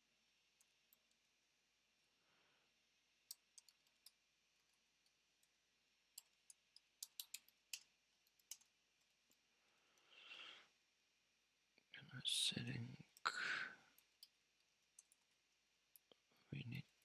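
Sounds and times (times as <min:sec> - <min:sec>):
faint computer keyboard typing: 0:00.6 - 0:01.3, 0:03.2 - 0:09.4, 0:13.9 - 0:17.0.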